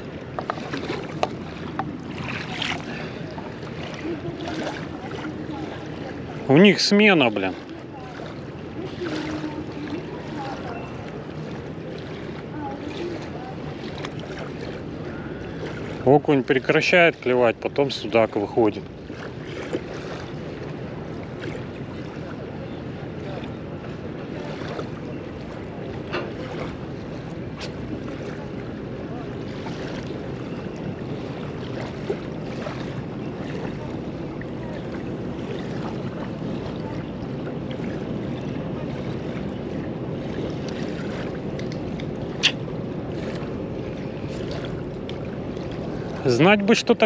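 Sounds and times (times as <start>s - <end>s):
small waves lapping: 0.0s - 47.0s.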